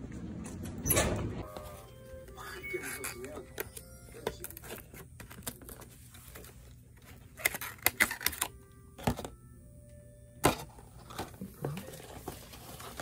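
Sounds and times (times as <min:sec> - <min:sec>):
aluminium foil crinkling: 0:02.4 - 0:08.5.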